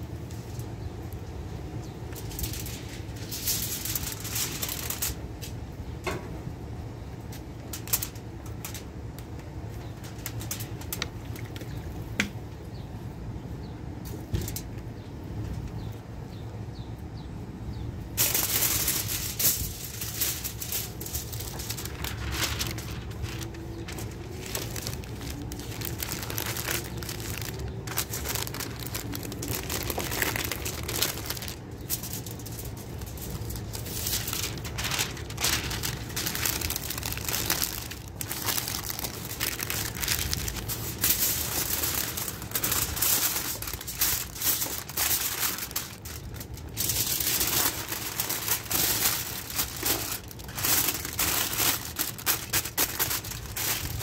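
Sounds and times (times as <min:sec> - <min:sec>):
foil and paper crinkling: 0:02.0 - 0:05.3, 0:07.6 - 0:08.9, 0:09.9 - 0:11.8, 0:18.2 - 0:54.0.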